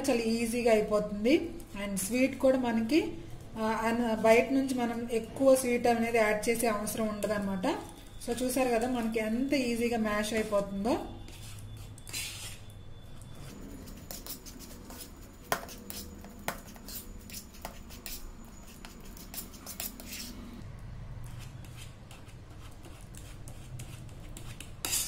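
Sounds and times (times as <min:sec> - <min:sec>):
fork mashing banana in bowl: 0:13.4 - 0:20.5, 0:21.2 - 0:25.0.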